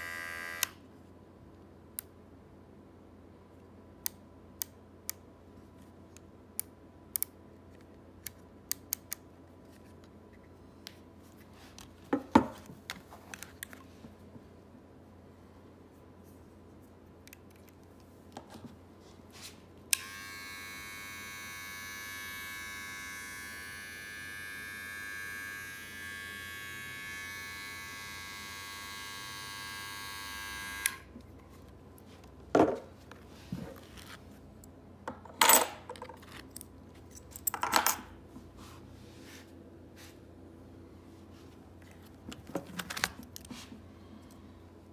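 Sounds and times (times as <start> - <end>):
hair trimmer buzzing: 0.0 - 0.8, 19.9 - 31.1.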